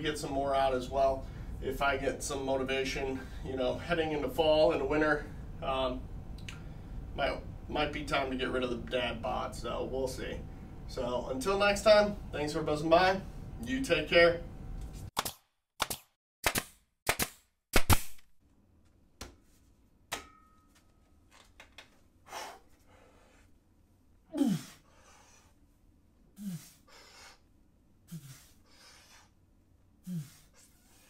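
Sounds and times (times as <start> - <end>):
man grunting and groaning: 24.3 - 24.8, 26.4 - 26.8, 30.1 - 30.4.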